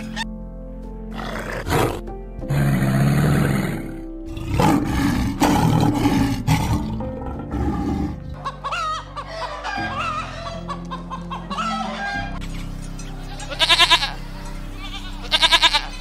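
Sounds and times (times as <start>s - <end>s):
background music: 0.0s - 16.0s
lion roaring: 1.1s - 8.4s
crocodile growling: 1.2s - 8.4s
chickens clucking: 7.2s - 16.0s.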